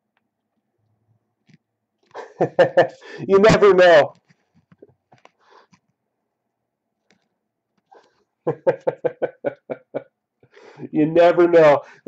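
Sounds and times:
man chuckling: 2.1s - 3.2s, 8.5s - 10.1s.

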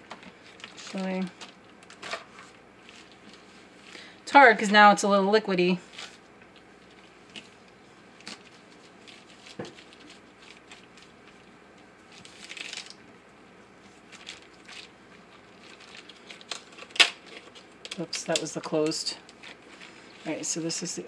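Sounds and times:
plastic bag rustle: 0.0s - 4.2s, 5.8s - 13.1s, 13.7s - 18.3s, 18.9s - 21.0s
plastic bag crinkling: 0.1s - 4.1s, 5.8s - 13.1s, 13.8s - 21.0s.

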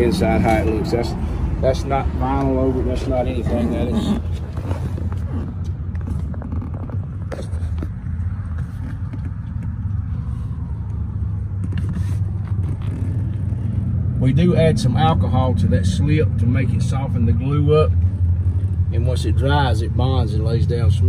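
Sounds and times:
clicks and rustles of handling: 4.2s - 10.1s.

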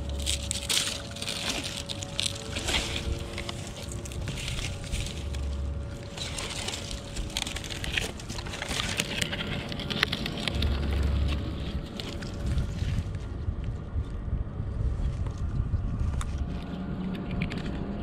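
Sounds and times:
dry vines snapping and rustling: 0.0s - 13.9s
wind rumble on microphone: 0.0s - 18.0s.

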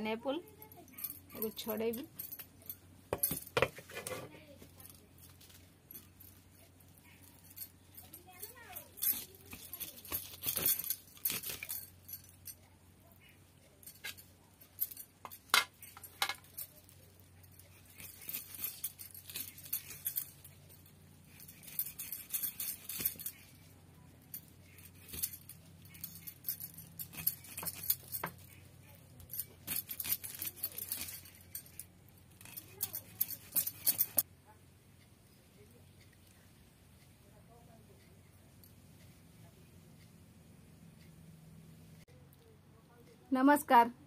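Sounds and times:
bangles jingling and clinking: 0.0s - 34.3s.

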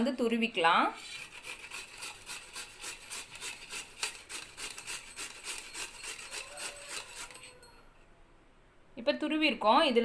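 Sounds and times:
potato grated on metal grater: 0.8s - 7.6s.

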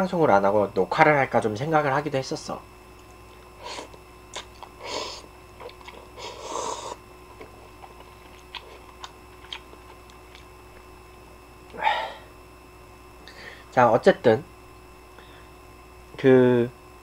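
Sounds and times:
chewing: 4.3s - 4.8s, 5.6s - 10.9s
person slurping noodles: 5.8s - 7.0s.

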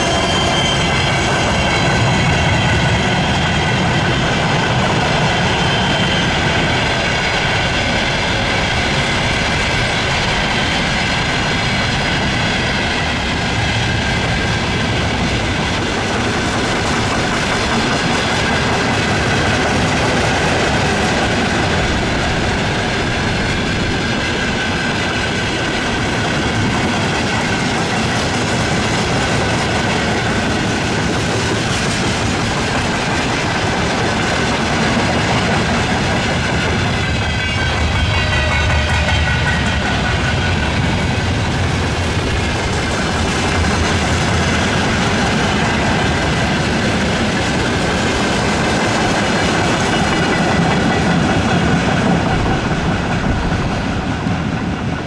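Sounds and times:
steady high whistle: 0.0s - 3.3s
freight train wagons clattering: 0.0s - 55.0s.

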